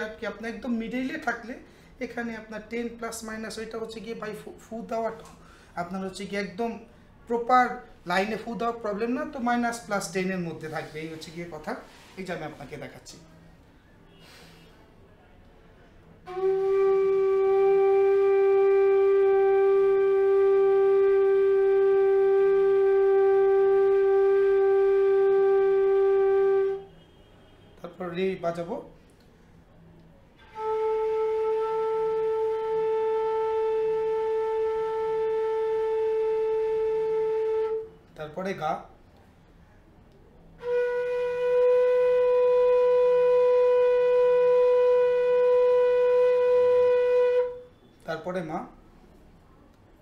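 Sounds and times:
bamboo flute steady tone: 16.2s - 27.8s, 30.3s - 38.4s, 40.6s - 47.9s.

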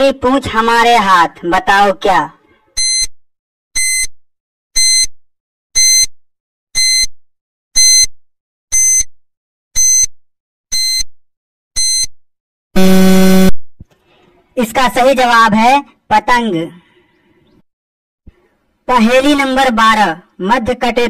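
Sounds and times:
short high electronic beeps: 11.8s - 12.1s.

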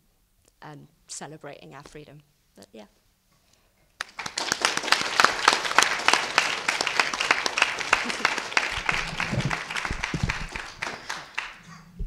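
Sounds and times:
audience applauding: 4.0s - 11.7s.

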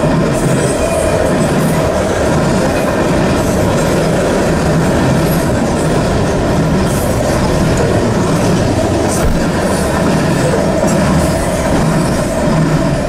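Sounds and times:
freight train rolling past: 0.0s - 13.0s.

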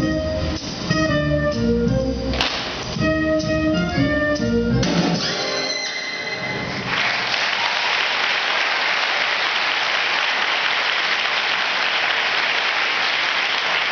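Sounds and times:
music: 0.0s - 7.0s
audience applause: 6.7s - 13.9s.

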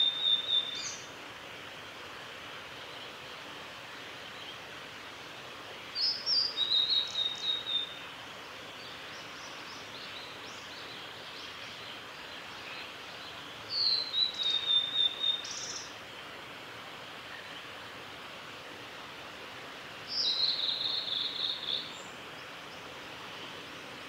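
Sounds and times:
steady background hiss: 0.0s - 24.0s
flycatcher singing: 13.7s - 15.9s, 20.1s - 22.8s.

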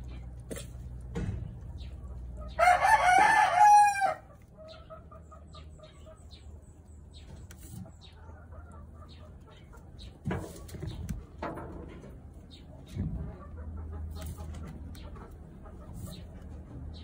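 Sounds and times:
rooster crowing: 2.6s - 4.3s.

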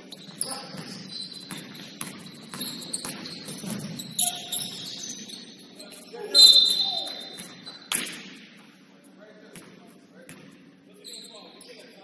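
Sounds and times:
shoes squeaking on gym court: 0.0s - 8.2s, 11.0s - 12.0s.

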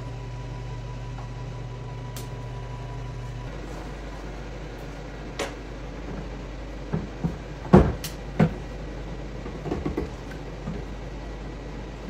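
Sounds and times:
hollow plastic knocks and clatters: 9.4s - 10.8s.

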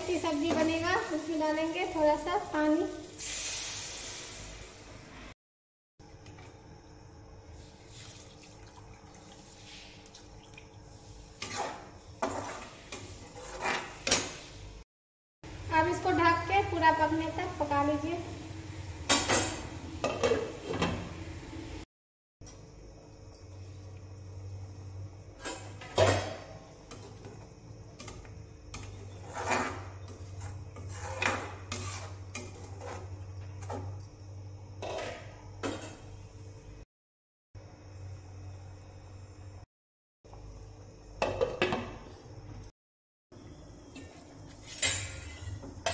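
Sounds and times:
water pouring into a pan: 7.9s - 10.8s
metal spatula stirring in a pan: 28.7s - 33.2s.

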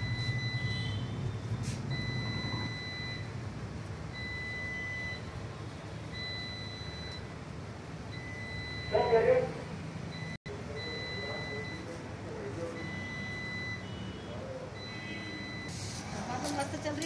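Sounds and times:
electronic beeper beeping: 0.0s - 1.1s, 10.2s - 12.0s, 12.8s - 15.9s.

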